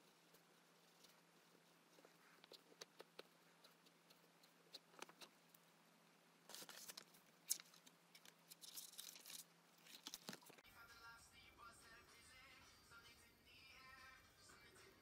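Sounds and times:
pen scratching on paper: 0.0 - 5.4
paper rustling: 6.5 - 10.6.

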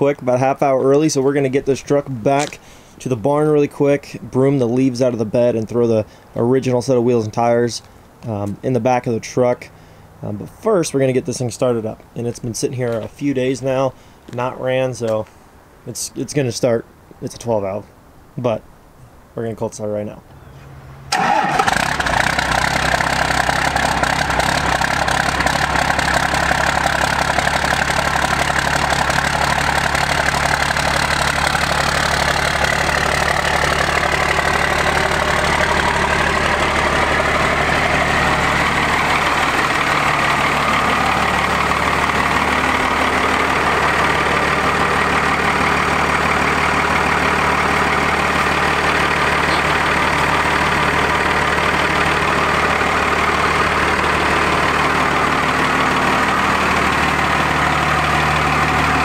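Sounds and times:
diesel engine idling: 21.1 - 59.0.

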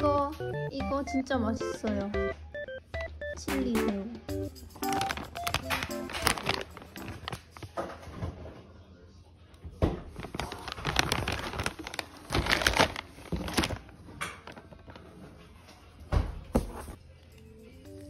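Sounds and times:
plastic packaging crinkling: 4.8 - 7.8, 10.0 - 15.3.

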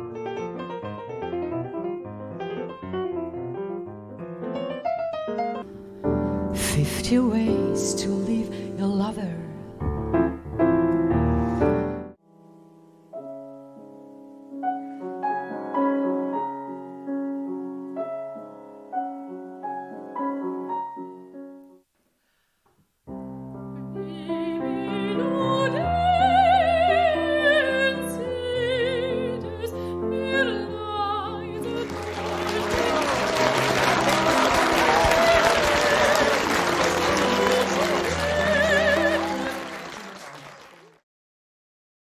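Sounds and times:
grand piano playing quietly: 0.0 - 21.8, 23.1 - 40.0
soprano singing operatically: 6.6 - 9.7, 23.9 - 39.9
loud piano passage: 9.8 - 12.2, 31.5 - 40.7.

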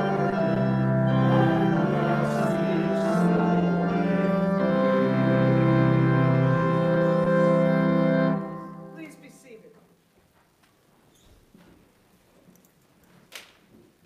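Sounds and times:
organ playing hymn chords: 0.0 - 9.4.

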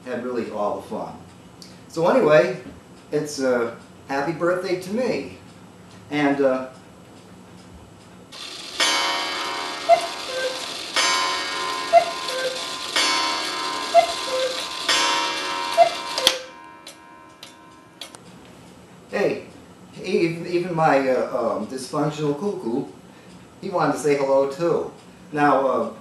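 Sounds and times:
ringing tone: 8.4 - 18.1
cuckoo clock calling: 8.4 - 18.2.

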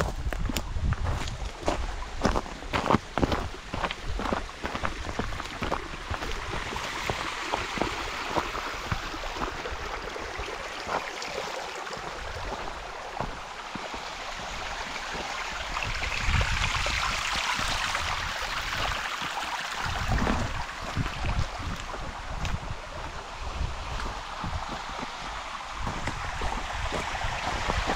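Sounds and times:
wind buffeting microphone: 0.0 - 10.5, 15.5 - 19.0, 19.8 - 27.9
stream rushing over rocks: 0.0 - 27.9.

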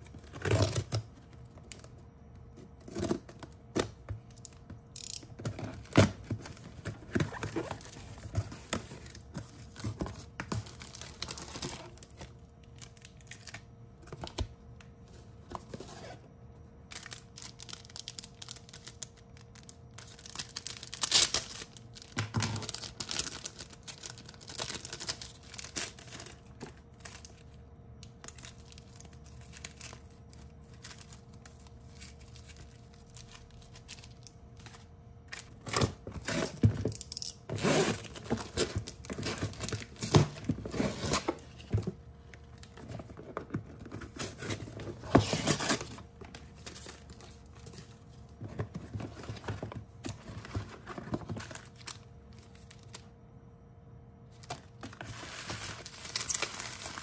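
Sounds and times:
faint steady hum: 0.0 - 57.0
parcel tearing and crinkling: 16.9 - 43.2, 54.4 - 57.0.

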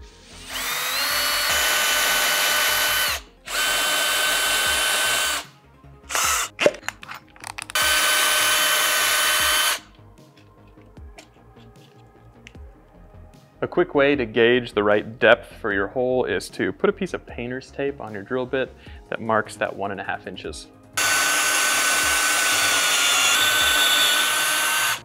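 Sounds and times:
cordless drill drilling into wood: 0.4 - 5.5, 6.1 - 6.5, 7.8 - 9.9, 21.0 - 25.0.

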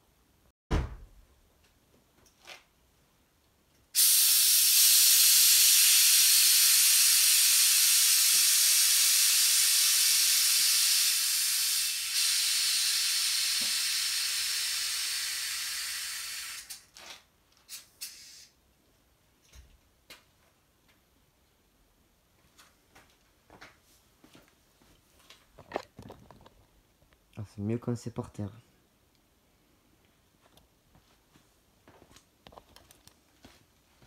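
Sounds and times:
air suspension hissing: 4.0 - 16.8.

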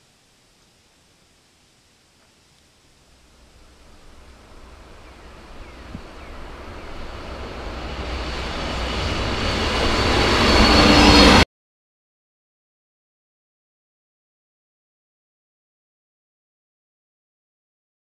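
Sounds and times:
train rumble: 3.1 - 11.4
faint high squeal: 5.6 - 11.4.

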